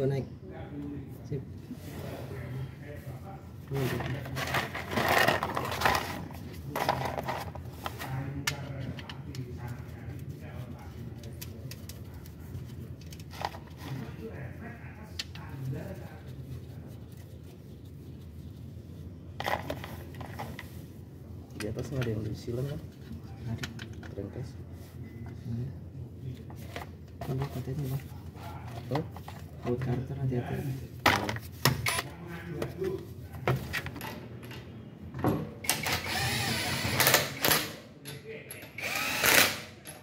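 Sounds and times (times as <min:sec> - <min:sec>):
impact wrench running: 0:35.7 - 0:37.7, 0:38.8 - 0:39.8.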